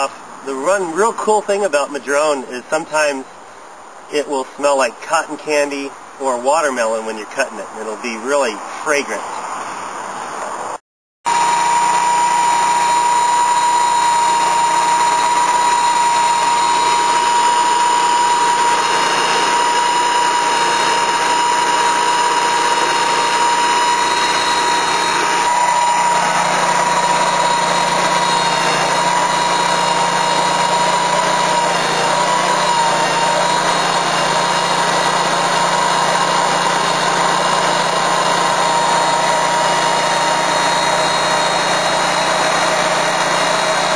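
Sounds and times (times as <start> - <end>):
sawmill engine and saw: 0.0 - 3.3, 4.1 - 9.2, 11.3 - 43.9
high steady whine: 11.3 - 43.9.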